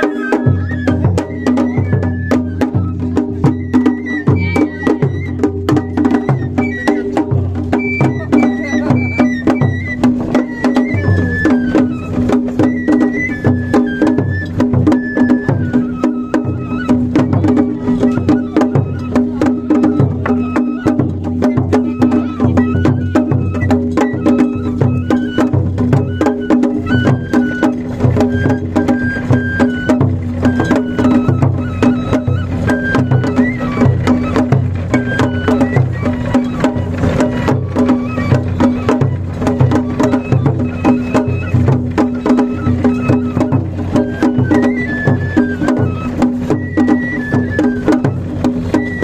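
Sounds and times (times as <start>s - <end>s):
high flute melody: 0.0s - 49.0s
large drum beaten with sticks: 0.0s - 49.0s.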